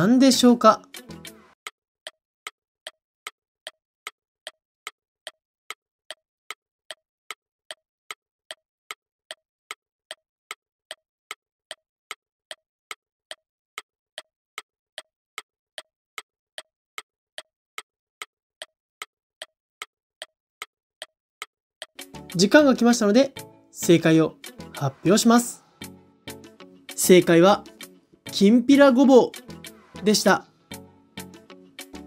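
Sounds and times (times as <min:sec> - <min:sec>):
clock ticking: 0:01.6 - 0:23.4.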